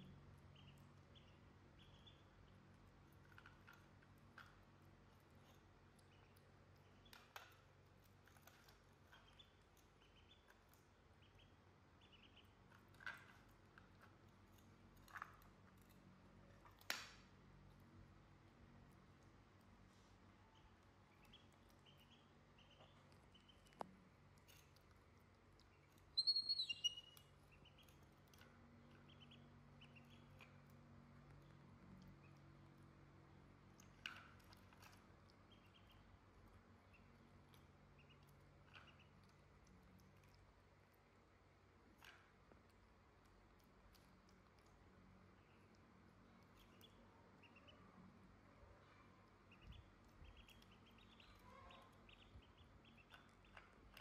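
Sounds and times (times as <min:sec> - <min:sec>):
ducklings peeping: 0:00.0 - 0:04.6, 0:05.4 - 0:14.0, 0:20.4 - 0:23.8, 0:25.4 - 0:32.9, 0:33.7 - 0:40.4, 0:44.0 - 0:47.9, 0:48.8 - 0:54.0.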